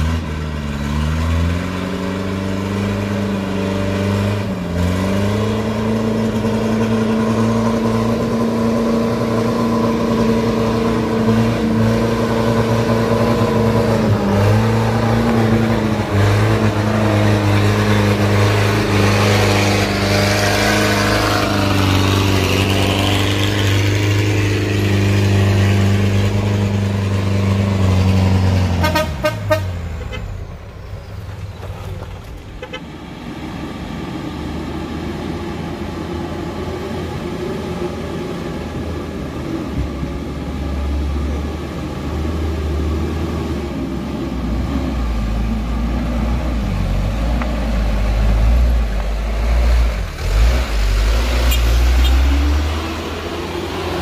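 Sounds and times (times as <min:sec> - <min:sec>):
truck diesel engine labouring: 0:00.0 - 0:54.0
short horn toots: 0:28.8 - 0:30.4, 0:51.4 - 0:52.3.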